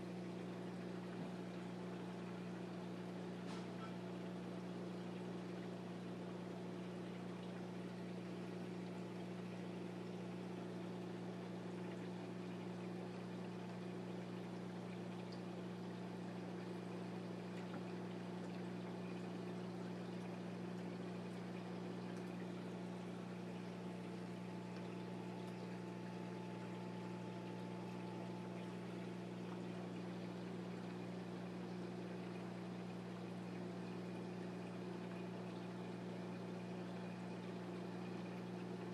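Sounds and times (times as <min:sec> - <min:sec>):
aquarium pumps humming: 0:00.0 - 0:38.9
circulating water washing: 0:00.0 - 0:38.9.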